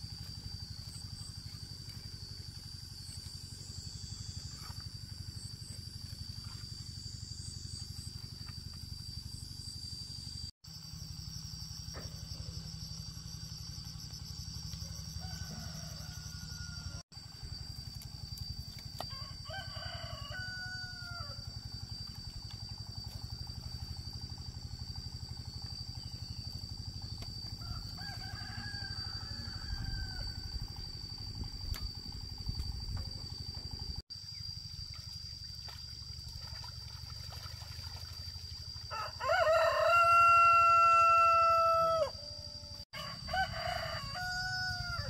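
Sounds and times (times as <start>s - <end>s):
rooster crowing: 14.8s - 17.0s, 19.1s - 21.4s, 27.5s - 30.8s, 38.9s - 45.0s.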